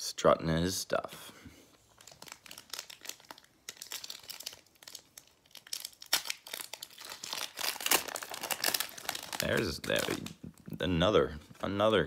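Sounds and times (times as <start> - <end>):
foil wrapper crinkling and tearing: 1.9 - 10.6.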